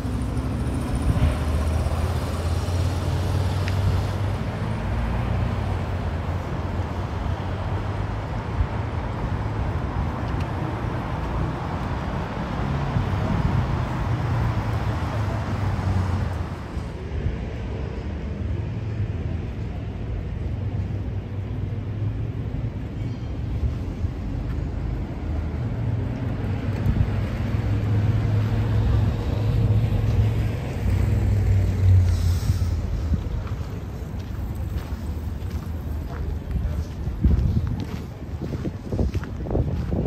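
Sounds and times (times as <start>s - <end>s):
vehicle passing: 0.0s - 18.2s, 23.9s - 40.0s
tyres hissing on wet road: 28.6s - 35.2s.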